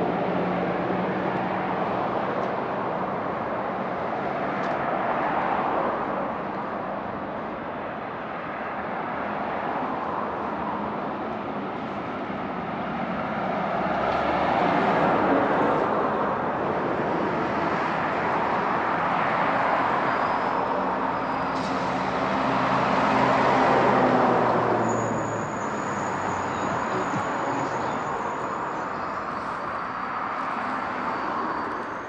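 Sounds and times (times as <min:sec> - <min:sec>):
cars passing: 0:00.0 - 0:32.0
engine hum: 0:20.6 - 0:32.0.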